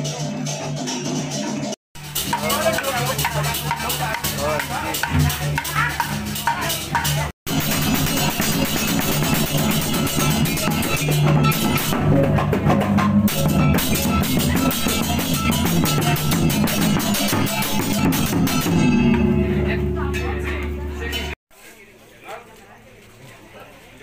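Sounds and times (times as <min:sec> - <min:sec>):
crashing cymbals: 0:00.0 - 0:12.6, 0:13.3 - 0:21.4
drums beating: 0:00.0 - 0:21.4
ringing gongs: 0:13.3 - 0:21.4.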